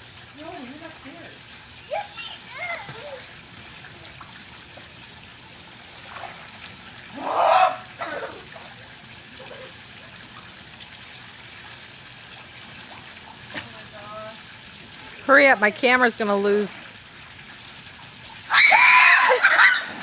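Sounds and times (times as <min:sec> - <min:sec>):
pool water trickling: 0:00.0 - 0:20.0
person shouting: 0:07.1 - 0:08.4.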